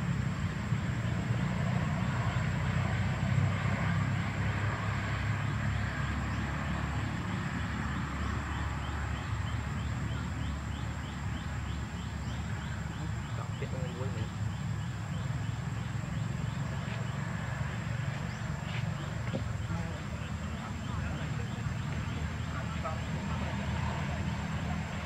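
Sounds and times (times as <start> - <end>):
low outdoor rumble: 0.0 - 25.0.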